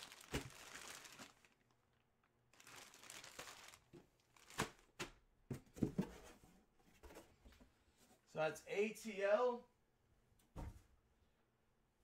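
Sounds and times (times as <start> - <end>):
plastic bag crinkling: 0.0 - 4.9.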